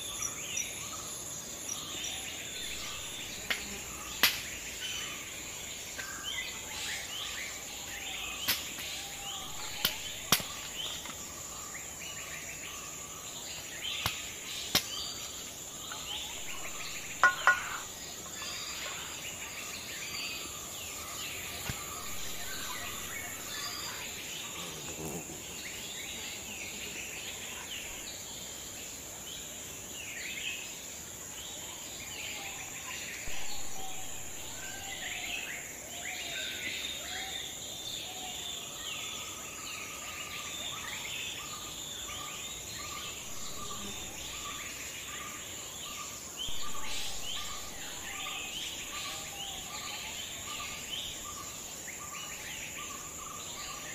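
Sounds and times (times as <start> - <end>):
high insect drone: 0.0 - 53.9
bird chirps: 13.6 - 25.9.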